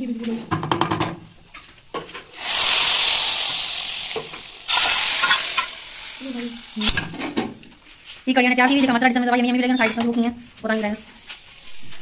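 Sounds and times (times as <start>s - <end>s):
hot oil sizzling: 2.3s - 7.2s.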